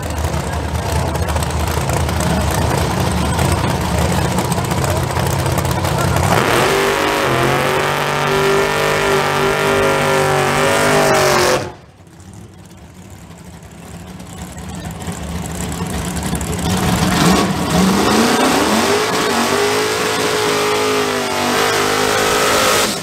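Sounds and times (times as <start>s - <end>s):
engine revving at high rpm: 0.0s - 11.9s, 16.0s - 23.0s
car engine running rough: 0.0s - 23.0s.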